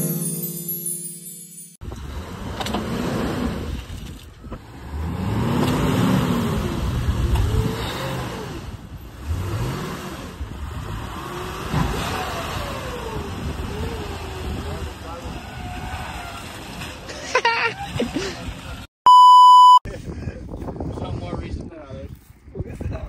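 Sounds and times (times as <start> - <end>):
tyre and wind noise: 1.8 - 18.9, 19.9 - 23.0
vehicle engine revving: 1.9 - 16.9.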